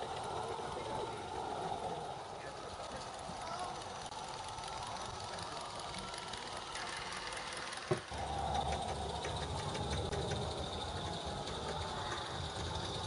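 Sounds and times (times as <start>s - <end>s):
steam locomotive chuffing: 0.0s - 13.0s.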